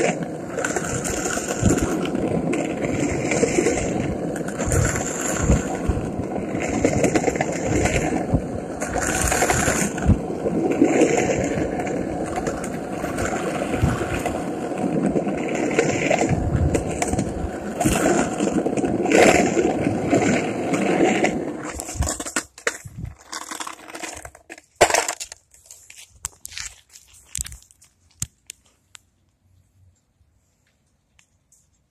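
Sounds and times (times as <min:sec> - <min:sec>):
skateboard wheels rolling on concrete: 0:00.0 - 0:31.9.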